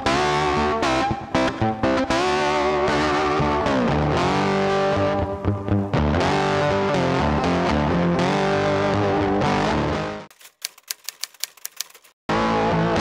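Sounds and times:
distorted electric guitar music: 0.0s - 10.3s, 12.3s - 13.0s
typewriter key clicks: 10.3s - 12.2s.

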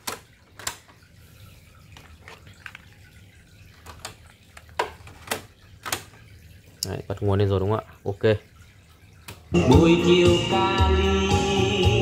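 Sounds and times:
plastic clicks and knocks: 0.0s - 1.0s, 3.8s - 6.2s.

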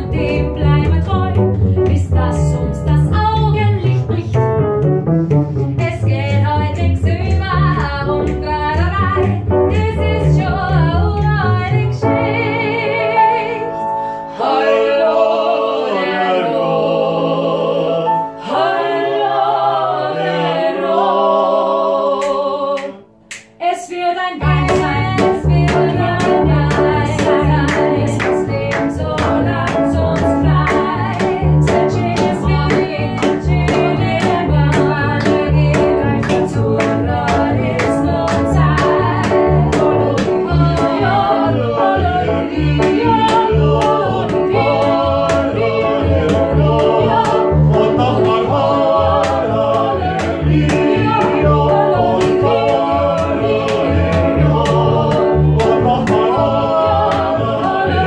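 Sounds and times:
instrumental accompaniment: 0.0s - 23.7s, 24.3s - 58.0s
voices singing with vibrato: 5.8s - 58.0s.

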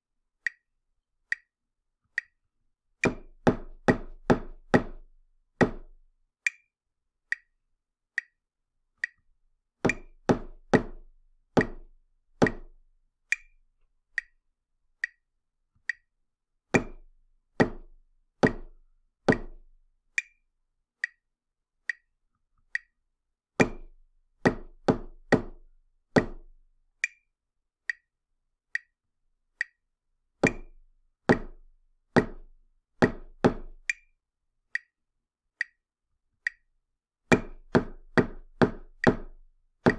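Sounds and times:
high metronome clicks: 0.5s - 0.7s, 2.1s - 2.4s, 5.8s - 6.7s, 7.3s - 7.6s, 8.2s - 8.4s, 9.0s - 9.3s, 9.9s - 11.0s, 11.6s - 14.4s, 15.0s - 15.2s, 15.8s - 16.1s, 16.8s - 20.4s, 21.0s - 21.2s, 21.9s - 22.1s, 22.7s - 23.0s, 26.2s - 27.3s, 27.9s - 28.1s, 28.8s - 29.0s, 29.6s - 29.8s, 30.4s - 32.6s, 33.2s - 35.0s, 35.6s - 35.8s, 36.5s - 36.7s, 37.3s - 39.9s.

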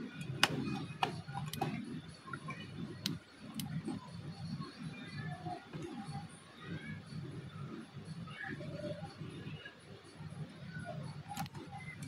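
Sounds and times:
clicks from handling devices: 0.2s - 1.8s.

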